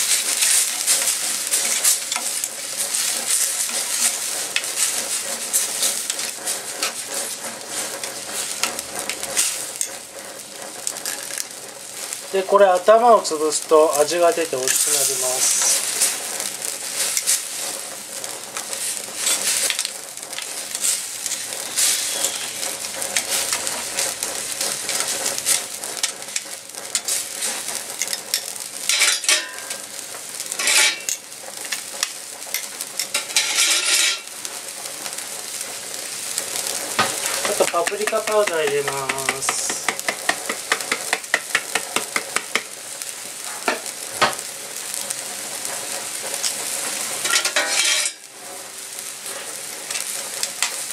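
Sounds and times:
broth bubbling and sizzling: 0.0s - 50.9s
metal tongs scraping a pan: 0.1s - 10.0s, 20.8s - 24.1s, 24.8s - 29.9s, 30.5s - 31.8s, 32.5s - 34.3s, 46.4s - 48.3s.

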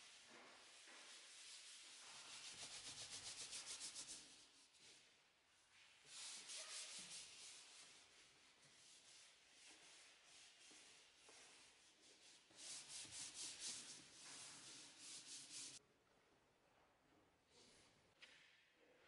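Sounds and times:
hand scrubbing carpet: 6.1s - 15.8s.

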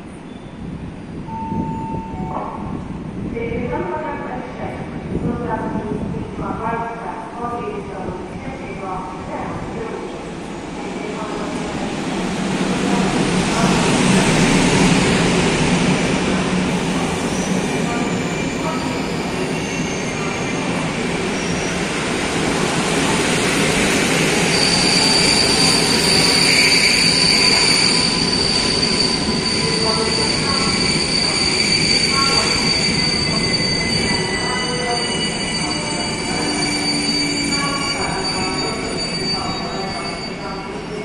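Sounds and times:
train wheels squealing on rails: 0.0s - 0.7s, 16.9s - 22.0s, 22.6s - 41.0s
train running noise: 8.8s - 41.0s.

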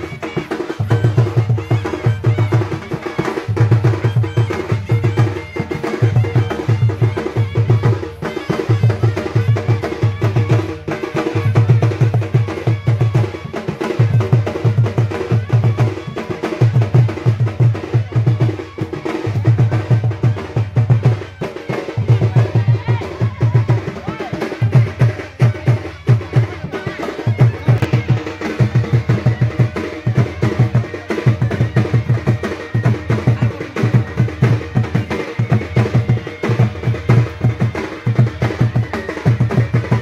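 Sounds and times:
barrel drums beaten rhythmically: 0.0s - 40.0s
crowd noise: 0.0s - 40.0s.

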